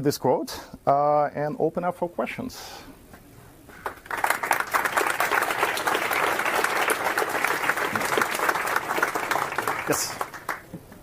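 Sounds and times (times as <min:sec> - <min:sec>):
audience applauding: 0:03.8 - 0:10.7.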